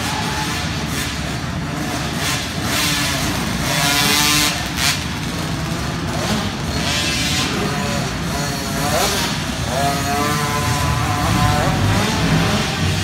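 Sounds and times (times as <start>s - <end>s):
minibike engines revving: 0.0s - 13.0s.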